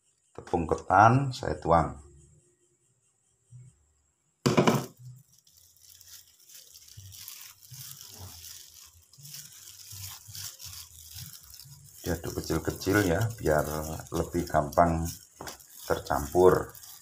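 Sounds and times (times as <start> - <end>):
loud knock: 4.5 - 4.9
hand rubbing flour in bowl: 4.7 - 17.0.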